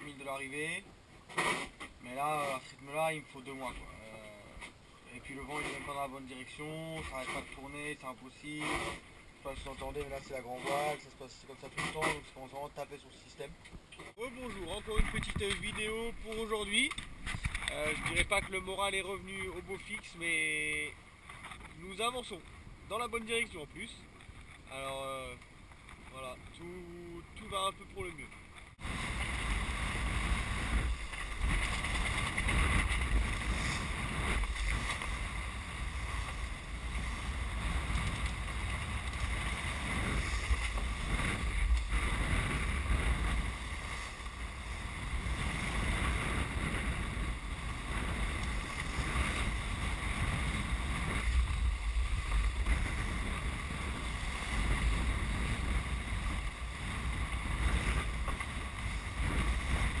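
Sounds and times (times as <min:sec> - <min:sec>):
water rushing along hull: 0:28.6 - 1:00.0
wind buffeting microphone: 0:28.7 - 1:00.0.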